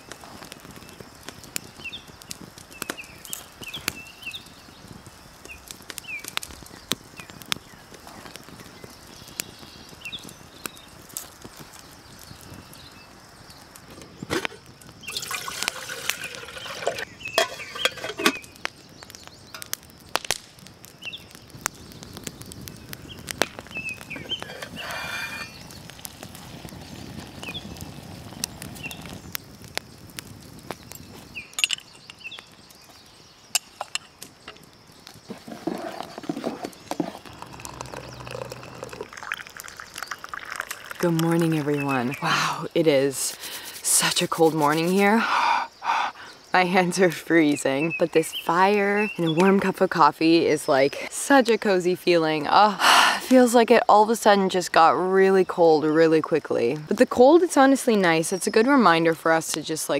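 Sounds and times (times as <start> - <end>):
campfire crackling and popping: 0.0 - 59.9
coffee poured into ceramic mug: 15.1 - 18.1, 37.0 - 41.7.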